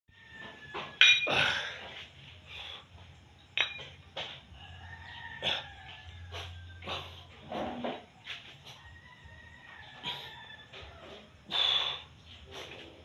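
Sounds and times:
metal dumbbell plates clinking: 0.8 - 1.6, 3.5 - 4.3.

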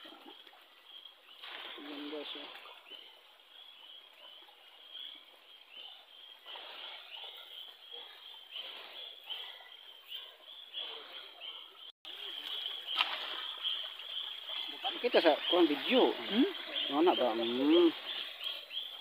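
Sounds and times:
night insects chirping: 11.8 - 19.0
footsteps on stream rocks: 12.3 - 15.6.

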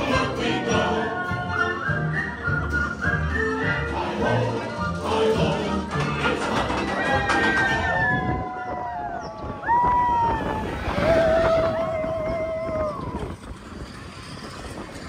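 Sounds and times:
roller coaster train rumbling: 0.0 - 15.0
rushing wind: 5.9 - 15.0
riders screaming and whooping: 6.4 - 15.0.

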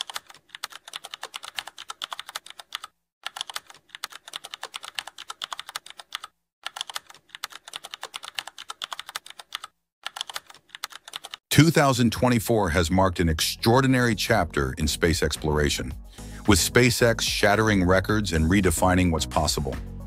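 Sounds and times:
keyboard typing clicks: 0.0 - 11.4.

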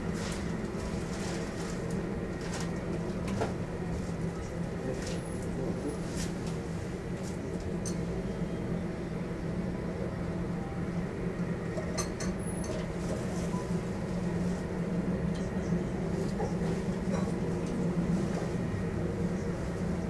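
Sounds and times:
jet engines idling: 12.8 - 20.0.

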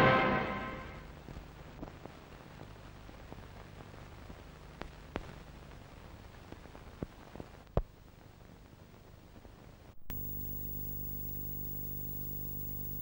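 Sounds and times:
film soundtrack hiss and hum: 0.0 - 13.0
film pops and clicks: 4.8 - 5.4.

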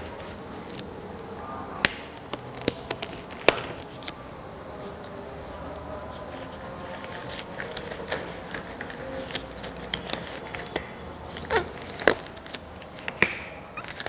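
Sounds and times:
rubber gloves rustling: 6.0 - 14.0.

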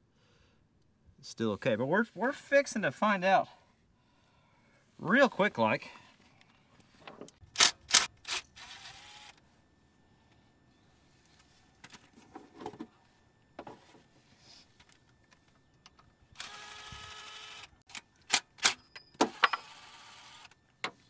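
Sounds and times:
sharp metal clicks: 7.5 - 8.4.

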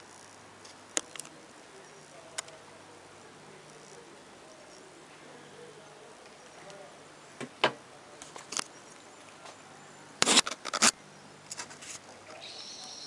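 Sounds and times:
camera handling clicks and rustles: 10.2 - 12.0.

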